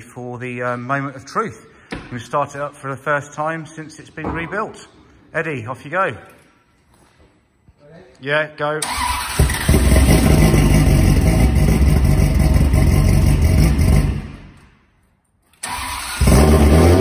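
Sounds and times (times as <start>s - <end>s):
car engine starting and idling: 8.8s - 14.6s, 15.6s - 17.0s.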